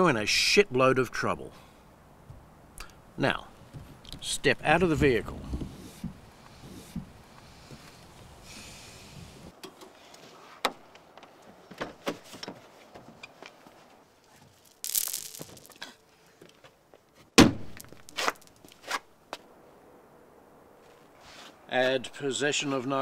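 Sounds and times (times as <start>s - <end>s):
pills spilling onto road: 14.5s - 16.0s, 17.6s - 18.9s.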